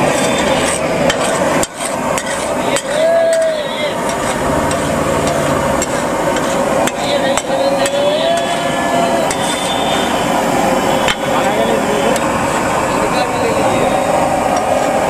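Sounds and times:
metal spatula scraping a griddle: 0.0 - 10.2.

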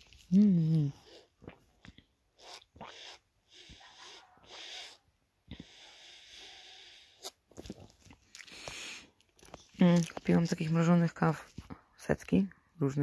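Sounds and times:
sucking through a straw: 0.0 - 9.6.

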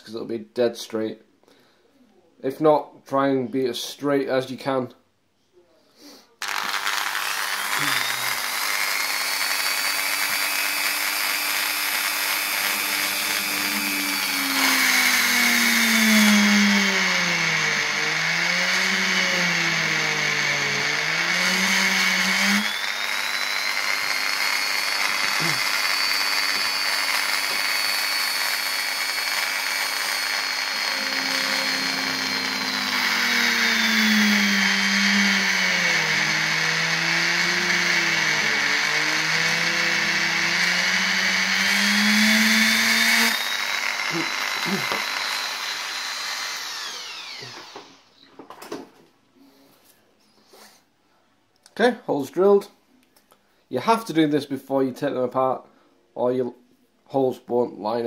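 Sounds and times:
rotary tool drilling wood: 6.4 - 48.2.

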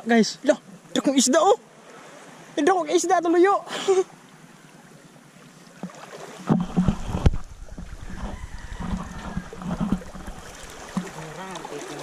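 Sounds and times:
seawater sloshing and lapping: 5.2 - 12.0
sharp knocks and bumps: 6.5 - 11.1.

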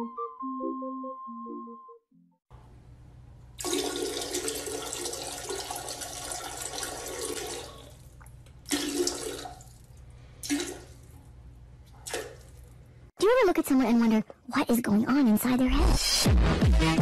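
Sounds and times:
toilet flushing: 3.5 - 11.2.

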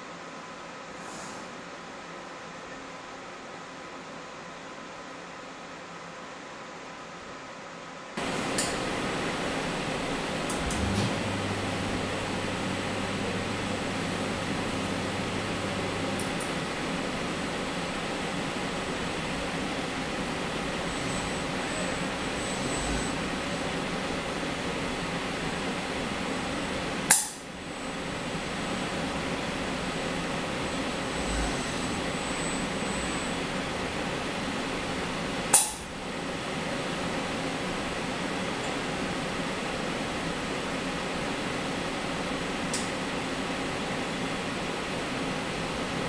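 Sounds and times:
faint high whine: 8.2 - 40.2
equipment fans humming: 8.2 - 46.0.

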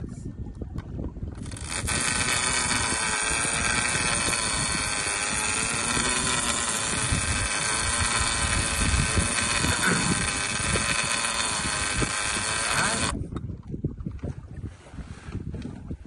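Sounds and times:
wind buffeting microphone: 0.0 - 16.0
boat engine idling: 1.4 - 13.2.

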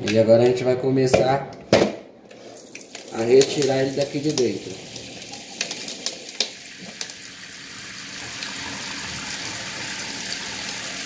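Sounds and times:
faucet spray running onto ice: 2.4 - 11.0.

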